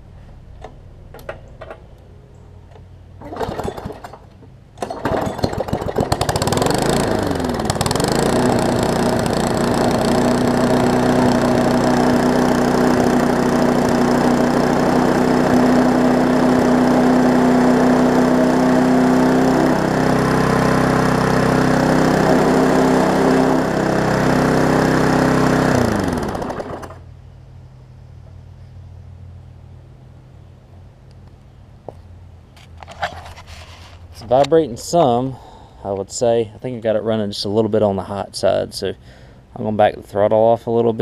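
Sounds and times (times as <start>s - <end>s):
lawn mower engine running: 0.2s - 27.4s
person talking: 34.2s - 39.0s, 39.6s - 41.0s.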